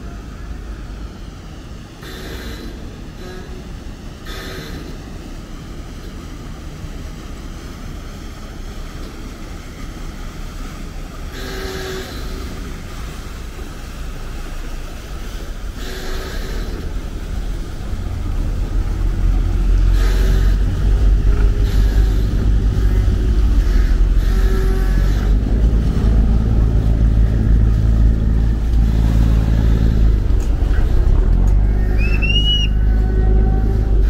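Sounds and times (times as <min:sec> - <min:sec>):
boat diesel engine rumbling: 0:00.0 - 0:34.0
rising and falling whistle: 0:31.8 - 0:32.8.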